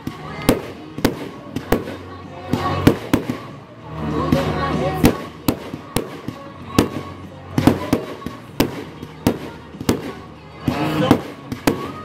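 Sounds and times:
fireworks bursting with sharp bangs: 0.0 - 12.0.

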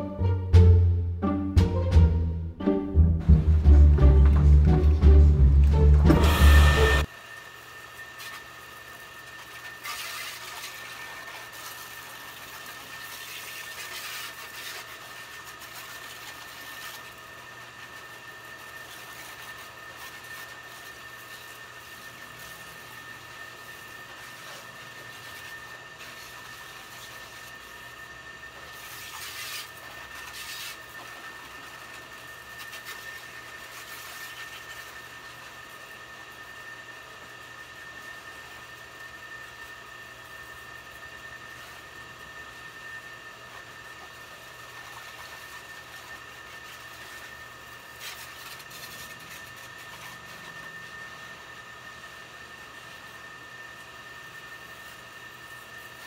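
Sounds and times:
steady hum with high whine: 0.0 - 56.0
hose nozzle spraying water: 9.3 - 27.8, 28.7 - 35.0.

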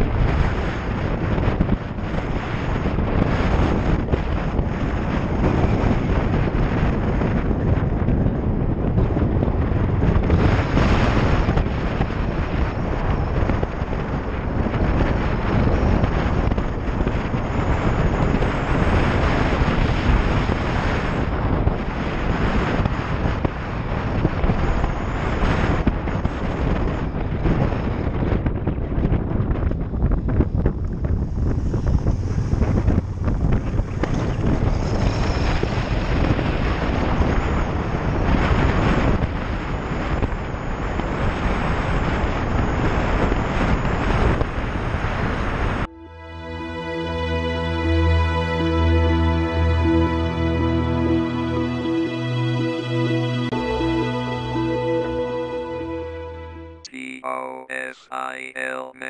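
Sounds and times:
wind buffeting microphone: 0.0 - 45.9
road noise: 29.6 - 38.4.

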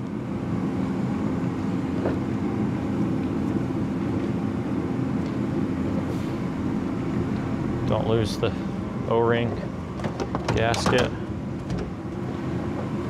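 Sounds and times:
shop machinery drone: 0.0 - 13.0.

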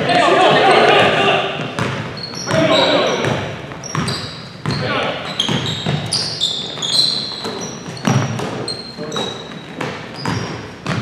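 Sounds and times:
sneakers squeaking on court: 0.0 - 11.0
basketball thudding on floor: 1.6 - 4.8, 5.5 - 6.1, 9.8 - 11.0.

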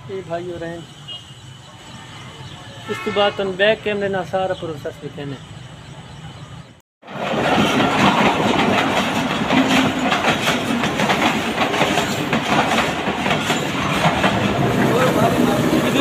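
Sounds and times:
train wheels clattering on rails: 7.0 - 16.0.

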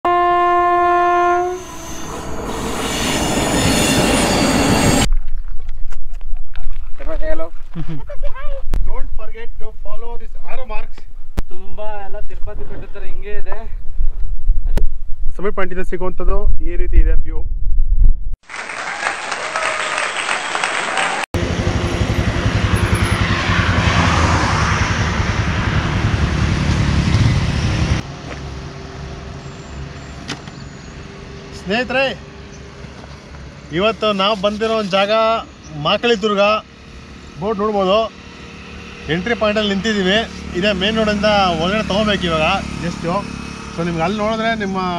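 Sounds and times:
train horn: 0.1 - 2.3
train passing: 0.7 - 5.1, 21.4 - 44.0
motorcycle engine running: 21.4 - 24.0.

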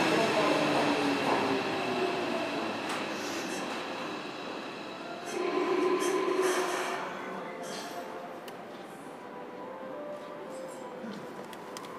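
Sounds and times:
electric train humming: 0.0 - 10.0.

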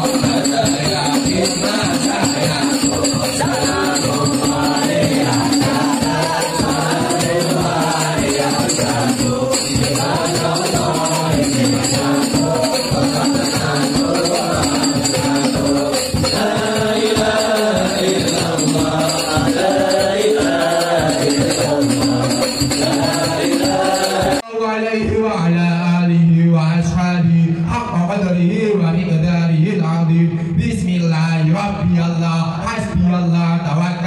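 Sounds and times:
frame drums: 0.0 - 24.4
jingling percussion: 0.0 - 24.4
group singing devotional song: 0.0 - 24.5.

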